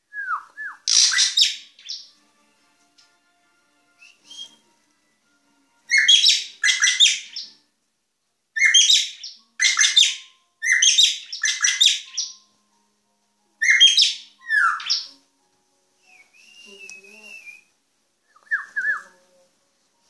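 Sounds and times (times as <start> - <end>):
bird calling rasping phrases: 0.8 - 2.1, 5.9 - 7.6, 8.6 - 12.4, 13.6 - 15.2.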